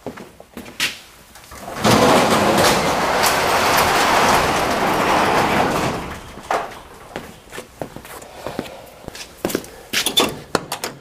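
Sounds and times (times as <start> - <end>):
garage door rattling up: 1.3 - 9.0.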